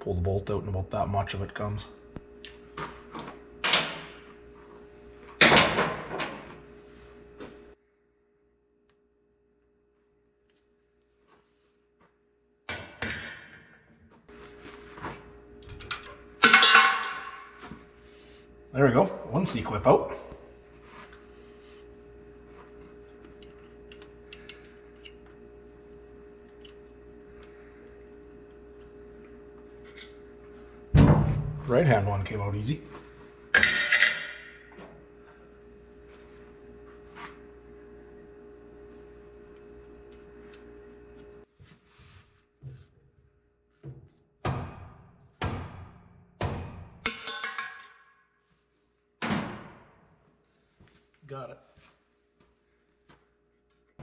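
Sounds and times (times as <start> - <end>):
steady low hum: 0.0 - 12.7, 14.2 - 41.6.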